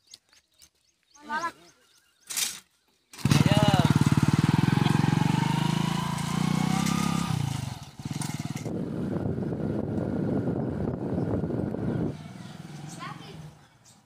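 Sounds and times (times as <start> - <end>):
motorcycle engine riding off: 3.1 - 14.0.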